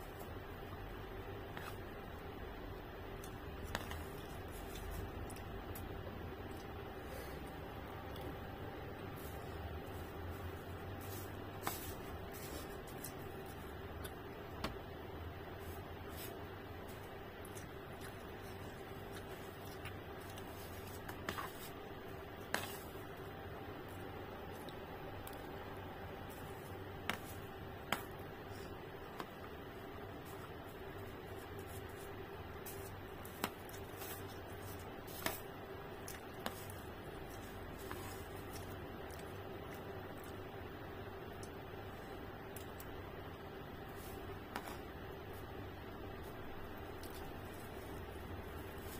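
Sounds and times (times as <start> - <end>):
low room hum: 0.0 - 48.9
faint chewing: 3.1 - 8.5, 15.7 - 21.8, 30.2 - 40.5, 46.1 - 48.9.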